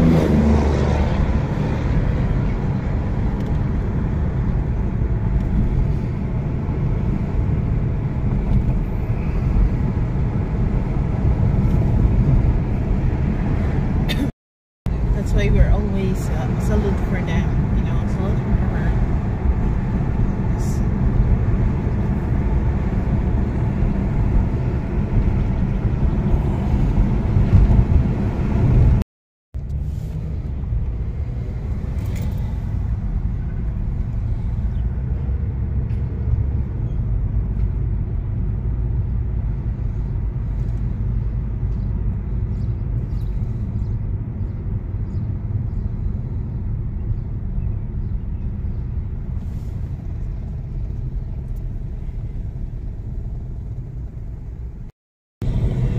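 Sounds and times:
car cabin road and engine rumble: 0:00.0 - 0:14.3, 0:14.9 - 0:29.0, 0:29.6 - 0:55.9.

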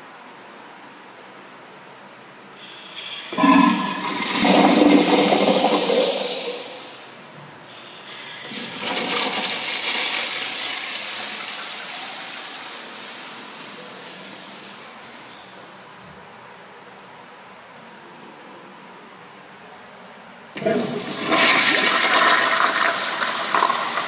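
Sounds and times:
urinal flushing: 0:02.6 - 0:15.4, 0:20.6 - 0:24.0.

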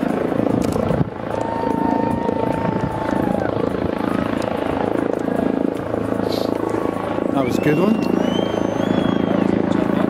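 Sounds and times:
low mechanical drone: 0:00.0 - 0:10.0.

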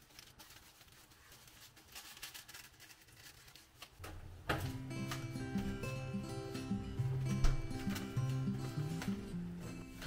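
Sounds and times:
background music: 0:04.2 - 0:10.0.

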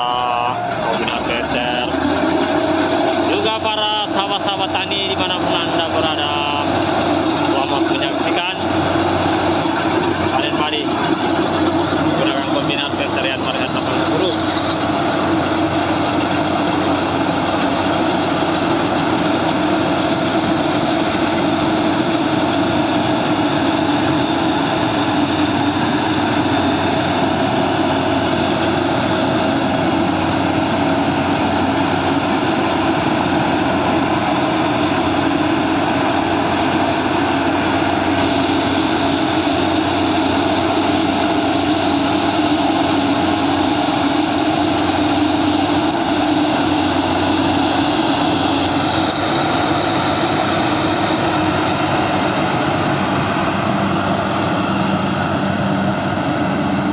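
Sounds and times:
combine harvester engine running: 0:00.0 - 0:56.9
high rushing hiss: 0:35.7 - 0:55.3.

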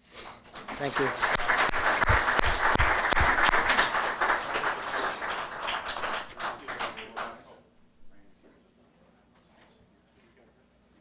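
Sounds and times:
applause: 0:00.3 - 0:07.5.

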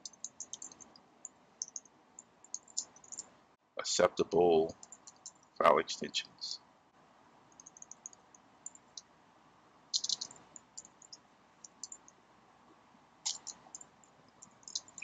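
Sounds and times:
computer keyboard typing: 0:00.0 - 0:01.0, 0:01.6 - 0:01.9, 0:02.5 - 0:03.3, 0:04.7 - 0:05.5, 0:07.5 - 0:09.0, 0:10.0 - 0:12.1, 0:13.3 - 0:15.0.

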